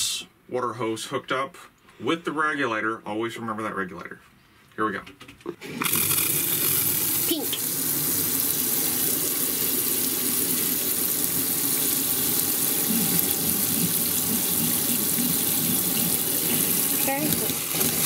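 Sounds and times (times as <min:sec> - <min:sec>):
faucet running water: 0:05.6 - 0:18.0.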